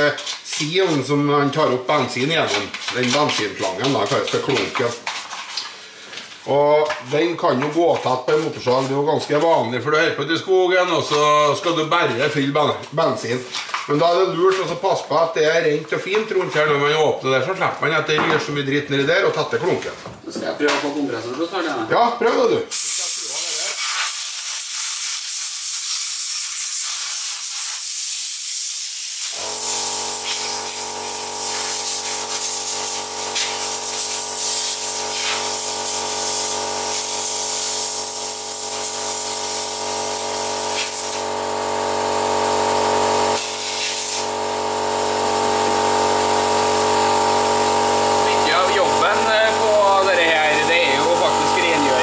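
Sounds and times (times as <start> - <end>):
air hissing: 22.7 - 41.3, 43.3 - 44.4
air compressor humming: 27.9 - 52.0.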